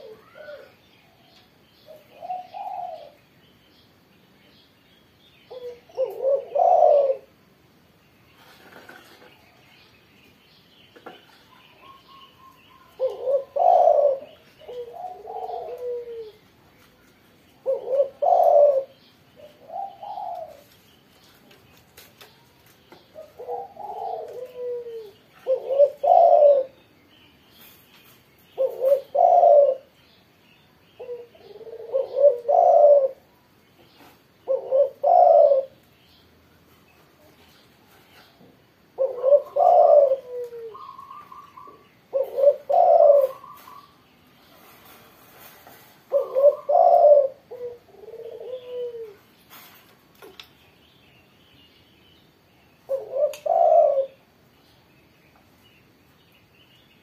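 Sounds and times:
dove cooing: 0.0s - 0.8s, 1.8s - 3.2s, 5.5s - 7.4s, 11.3s - 16.5s, 17.6s - 20.8s, 23.1s - 26.8s, 28.6s - 30.0s, 31.0s - 33.3s, 34.0s - 35.8s, 38.9s - 44.0s, 44.6s - 49.3s, 52.9s - 54.3s.

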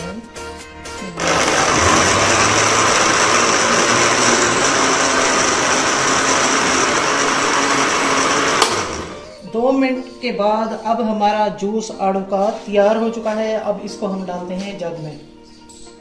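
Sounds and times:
blender motor running: 1.1s - 9.4s.

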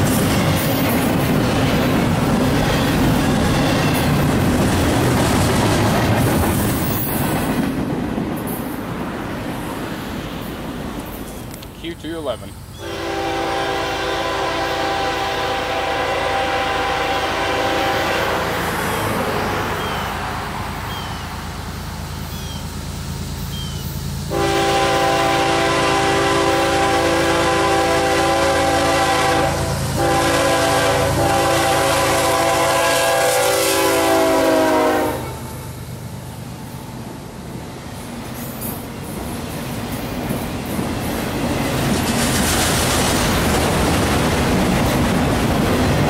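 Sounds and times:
train rumble: 0.0s - 46.0s
locomotive air horn: 12.8s - 19.0s, 24.3s - 35.5s.

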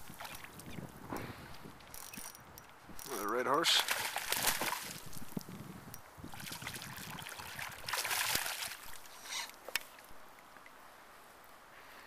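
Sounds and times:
fish splashing in water: 3.8s - 5.2s, 6.3s - 9.1s.

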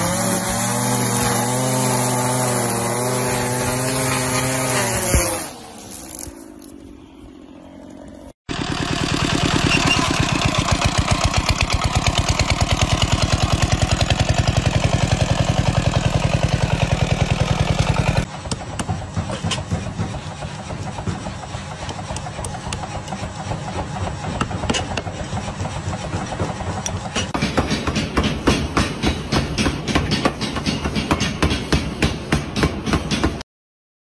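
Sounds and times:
tractor engine chugging: 8.5s - 27.4s.

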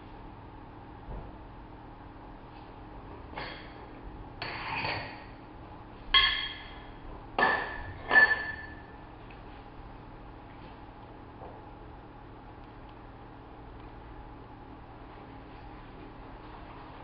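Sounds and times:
sharp metallic clanks ringing: 6.2s - 9.0s.

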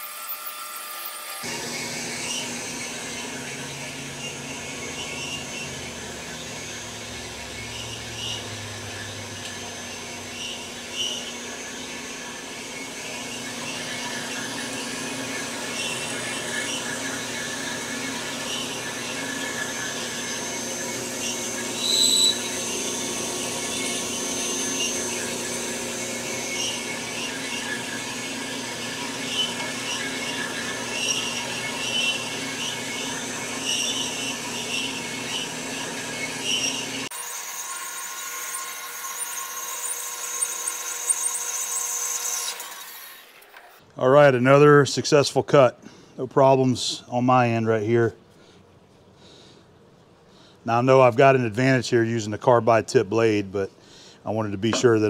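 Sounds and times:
bandsaw cutting steel: 0.0s - 43.8s
blade squeaks: 2.3s - 14.6s, 15.3s - 25.8s
sharp blade squeal: 21.8s - 22.6s.

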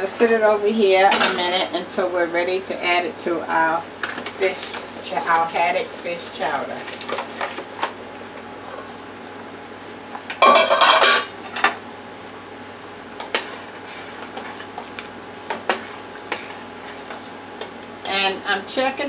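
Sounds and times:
metal pot lid clattering: 10.4s - 11.8s.

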